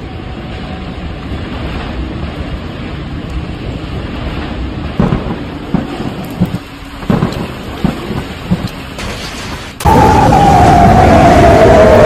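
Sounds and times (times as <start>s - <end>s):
wind blowing over microphone: 9.8s - 12.0s.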